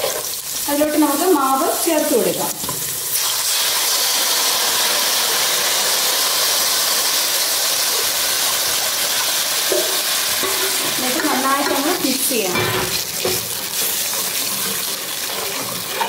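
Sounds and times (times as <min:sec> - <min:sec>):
batter sizzling in hot oil: 0:00.0 - 0:16.0.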